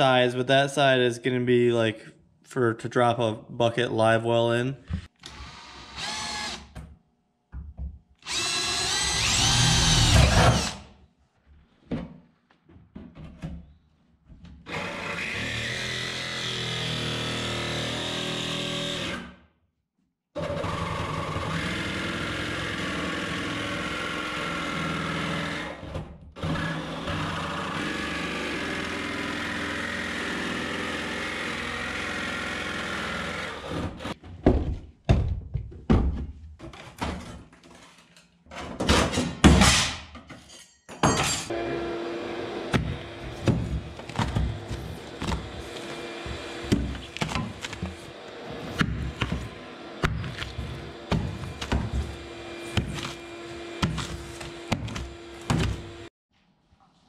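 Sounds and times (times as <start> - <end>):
jigsaw cutting aluminum: 5.2 - 6.7, 8.2 - 10.9, 14.7 - 19.4, 20.4 - 34.2, 41.5 - 56.1.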